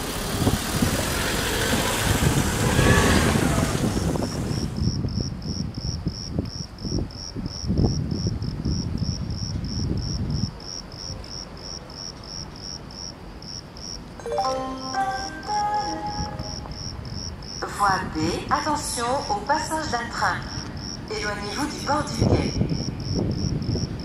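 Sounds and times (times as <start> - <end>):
cricket chirping: 3.3 - 14.2, 16.3 - 17.7, 20.4 - 21.1, 22.2 - 24.0
public address chime: 14.2 - 16.7.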